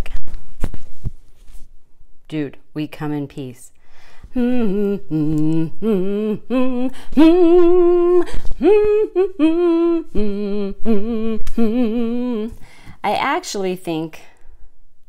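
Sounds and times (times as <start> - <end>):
woman humming: 4.3 - 12.6.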